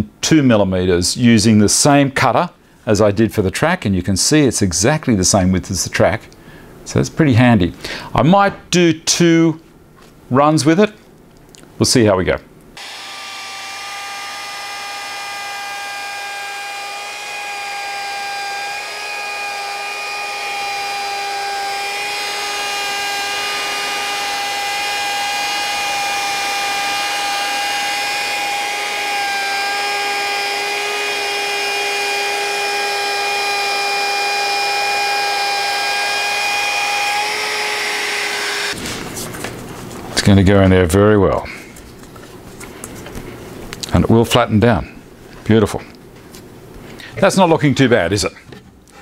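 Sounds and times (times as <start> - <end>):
router cutting wood: 12.8 - 38.8.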